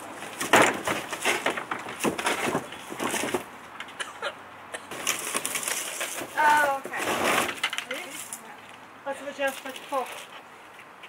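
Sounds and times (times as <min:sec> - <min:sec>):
plastic trash bin knocking and rattling: 0:00.4 - 0:03.5.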